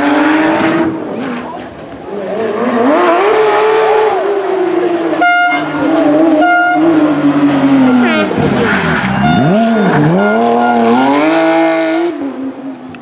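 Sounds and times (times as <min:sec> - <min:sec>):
rally car engine accelerating: 0:00.0 - 0:12.8
short horn-like tone: 0:09.1 - 0:11.0.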